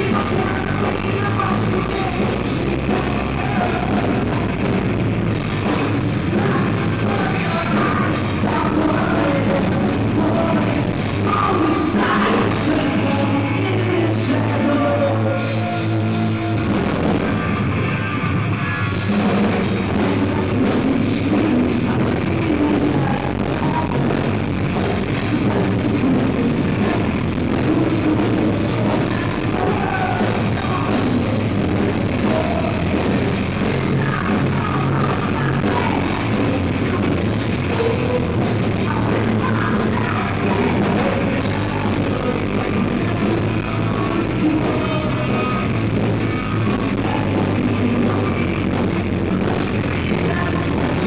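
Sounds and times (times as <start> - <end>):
person singing: 0.0 - 17.7, 19.0 - 51.0
live rock band playing: 0.0 - 51.0.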